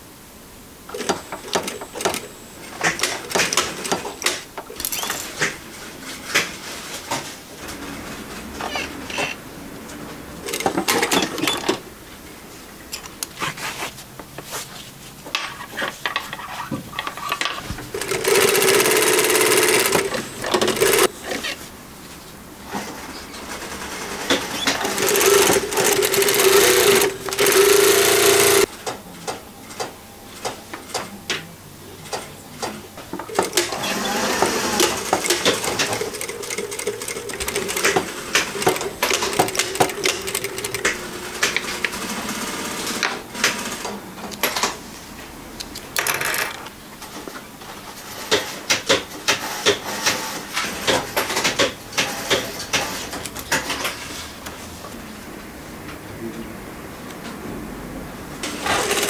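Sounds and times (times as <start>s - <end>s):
sewing machine whirring: 0.9s - 6.6s, 10.3s - 11.8s, 17.0s - 21.1s, 22.7s - 28.7s, 33.2s - 44.5s, 48.0s - 54.0s, 58.4s - 59.0s
sewing machine stitches ticking: 17.9s - 21.1s, 24.3s - 28.7s, 33.3s - 43.8s.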